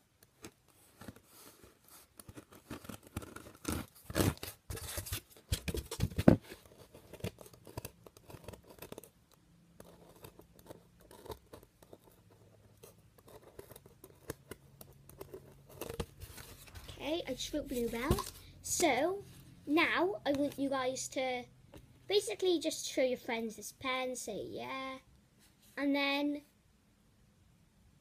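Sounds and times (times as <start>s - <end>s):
pen scratching on paper: 9.8s - 16.1s.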